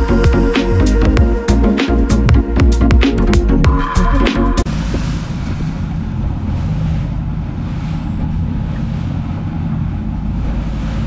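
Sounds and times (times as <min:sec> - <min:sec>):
boat engine running: 0:00.0 - 0:11.0
choppy water rushing: 0:04.6 - 0:11.0.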